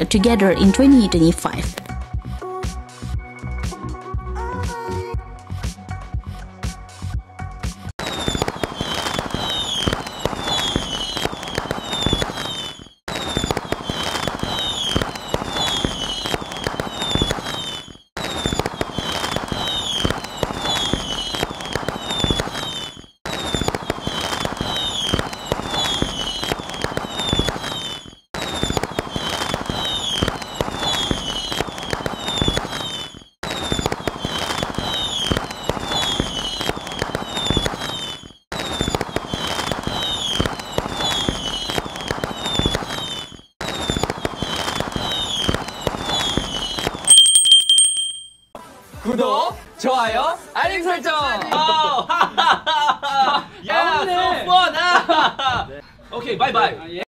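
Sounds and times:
fireworks crackling and popping: 0:08.0 - 0:47.9
fireworks falling whistles: 0:08.0 - 0:48.3.

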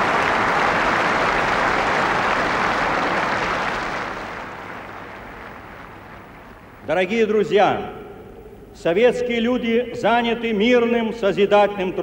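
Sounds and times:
stadium crowd applauding: 0:00.0 - 0:06.7.

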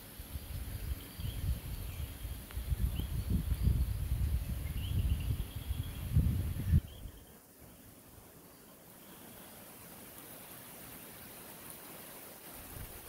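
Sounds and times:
high insect drone: 0:00.0 - 0:13.0
wind buffeting microphone: 0:00.3 - 0:07.2.

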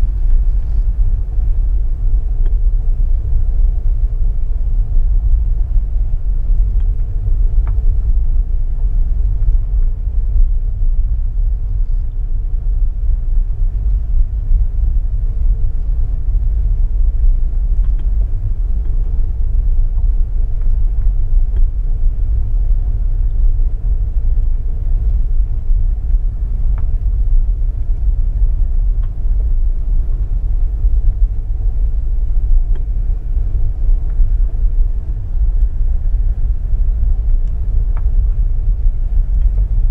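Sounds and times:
faint steady hum: 0:00.0 - 0:39.9
road and engine rumble: 0:00.0 - 0:39.9
light ticks: 0:02.4 - 0:02.6, 0:06.5 - 0:08.3, 0:09.1 - 0:11.1, 0:13.8 - 0:14.7, 0:17.2 - 0:23.6, 0:24.3 - 0:31.4, 0:32.4 - 0:39.9.

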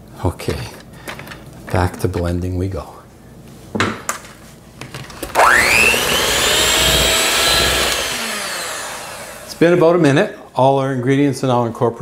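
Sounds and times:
electric mixer motor whine: 0:05.2 - 0:09.7.

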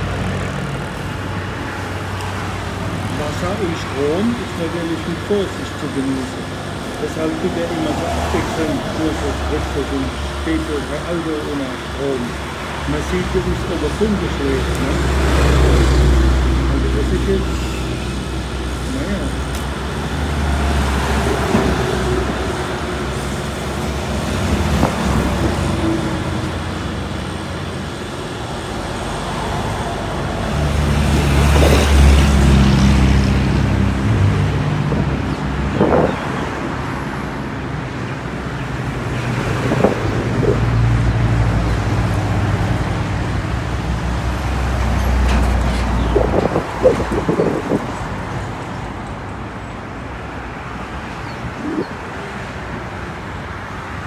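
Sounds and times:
road traffic passing: 0:00.0 - 0:54.0.

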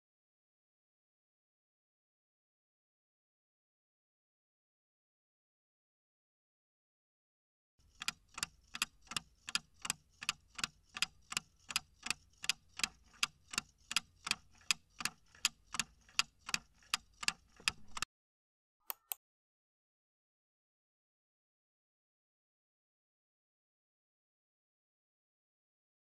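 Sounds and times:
clock ticking: 0:07.8 - 0:18.1.

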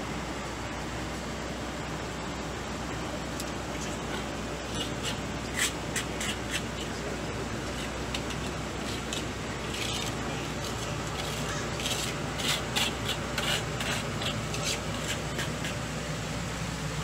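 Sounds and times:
steady low hum: 0:00.0 - 0:17.0
broom sweeping concrete: 0:03.8 - 0:16.1.

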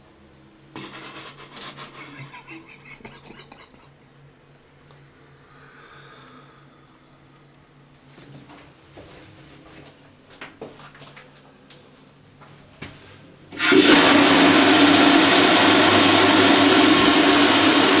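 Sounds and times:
toilet flushing: 0:00.8 - 0:03.4, 0:13.5 - 0:18.0.

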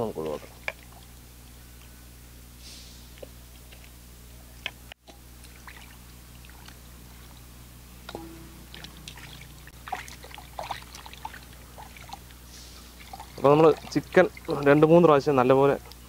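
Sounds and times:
faint low hum: 0:00.0 - 0:16.0
water splashing in metal pot: 0:08.1 - 0:14.9.

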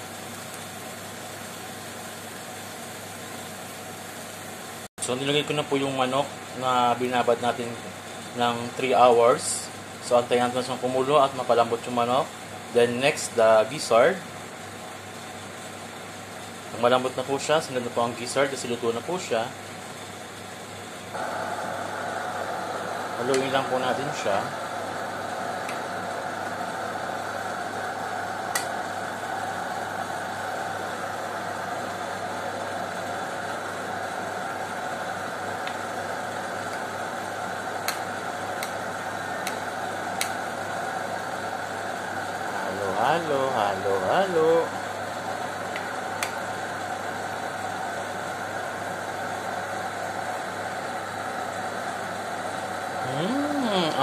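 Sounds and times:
sauce sizzling and bubbling: 0:00.0 - 0:04.9, 0:19.6 - 0:42.7
steady hum and hiss: 0:00.0 - 0:54.0.

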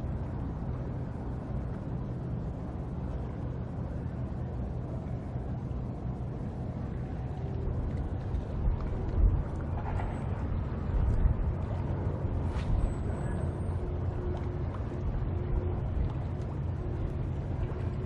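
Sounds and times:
ship engine drone: 0:00.0 - 0:18.0.

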